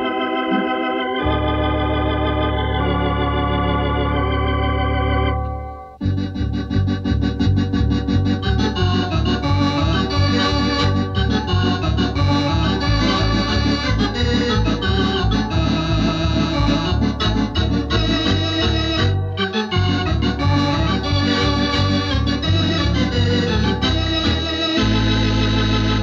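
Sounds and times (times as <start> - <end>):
electronic organ playing: 0.0 - 26.0
pulsing bass: 6.0 - 26.0.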